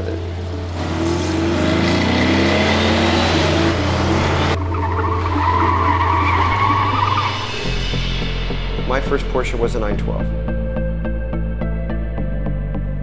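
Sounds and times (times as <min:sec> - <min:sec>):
car engine revving: 0:00.0 - 0:09.0
tyres squealing: 0:00.9 - 0:07.7.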